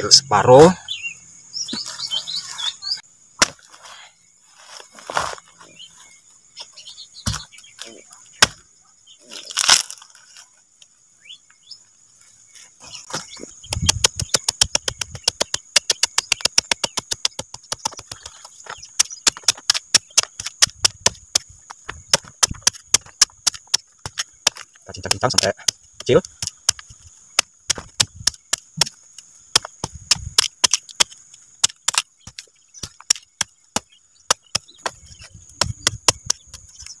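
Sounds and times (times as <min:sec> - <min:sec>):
machete chopping: 0:03.4 - 0:03.7, 0:07.2 - 0:07.5, 0:08.4 - 0:08.6, 0:13.1 - 0:37.0.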